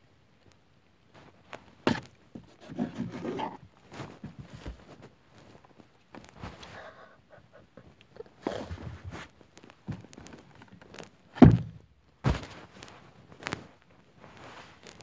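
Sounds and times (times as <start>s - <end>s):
rustling and handling noise: 0.4s - 15.0s
knocks: 11.4s - 12.5s.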